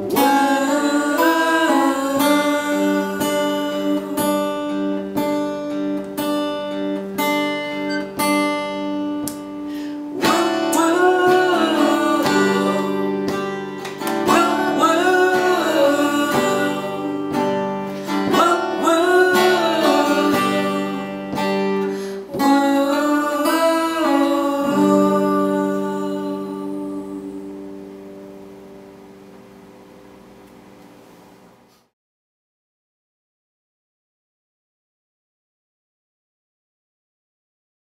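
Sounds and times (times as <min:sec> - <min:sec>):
person singing: 0:00.0 - 0:05.1, 0:09.8 - 0:27.8
acoustic guitar strumming: 0:00.0 - 0:30.4.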